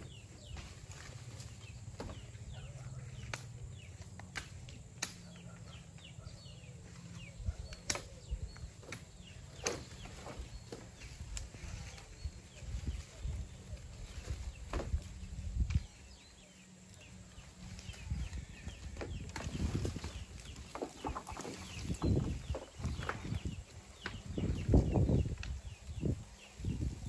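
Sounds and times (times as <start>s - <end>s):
twigs and bamboo snapping: 3.1s - 5.5s, 7.7s - 11.7s, 25.2s - 25.9s.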